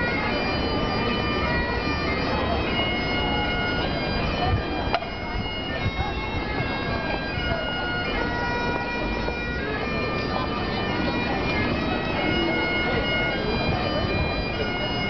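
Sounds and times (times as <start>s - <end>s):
bagpipes playing a tune: 0.0s - 15.0s
passers-by chatting: 0.0s - 15.0s.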